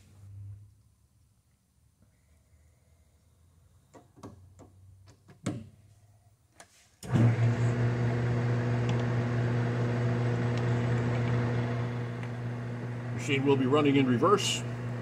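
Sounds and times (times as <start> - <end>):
lathe running with steady hum: 7.1 - 15.0.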